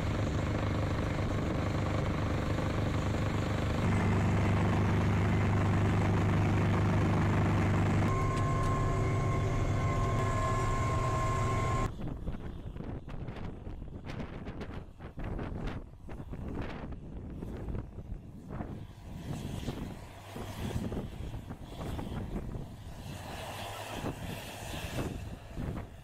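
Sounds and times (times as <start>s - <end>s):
snow blower engine running: 0.0s - 11.9s
high whine: 3.8s - 11.9s
wind noise on microphone: 11.5s - 26.0s.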